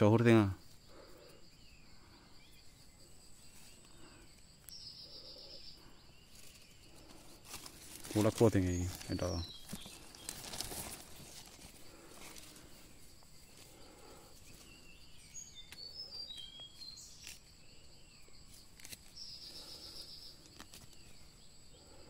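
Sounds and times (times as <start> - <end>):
falling bird chirps: 0.0 - 22.0.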